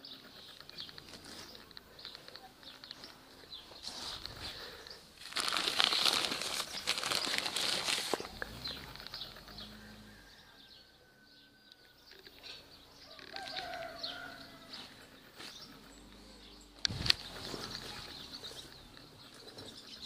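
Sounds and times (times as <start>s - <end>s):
plastic bags crinkling: 3.8s - 8.9s
faint bird chirps: 6.4s - 20.0s.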